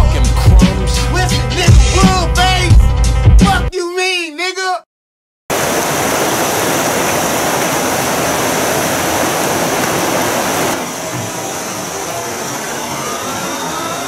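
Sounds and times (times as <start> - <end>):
whitewater rapids roaring: 5.5 - 14.0.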